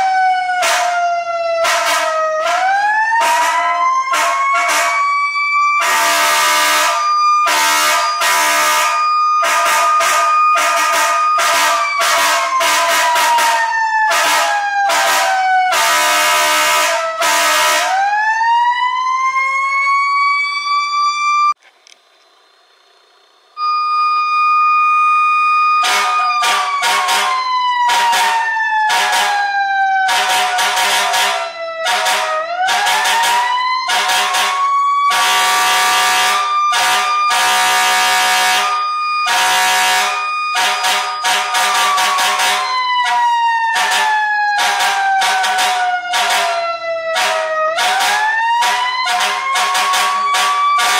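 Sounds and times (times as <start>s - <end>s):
siren wailing: 0.0s - 21.6s, 23.6s - 50.9s
short horn blasts: 1.6s - 5.0s, 5.8s - 18.0s, 25.8s - 29.4s, 30.1s - 46.6s, 47.2s - 50.9s.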